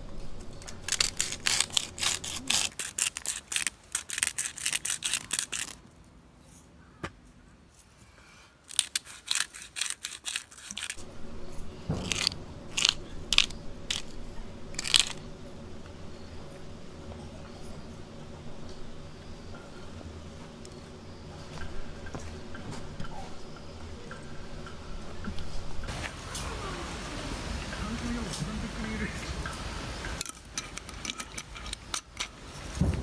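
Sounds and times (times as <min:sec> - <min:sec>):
pepper grinder cracking peppercorns: 0:00.5 - 0:05.9, 0:08.7 - 0:11.0, 0:12.0 - 0:14.2, 0:14.8 - 0:15.2, 0:30.2 - 0:32.4.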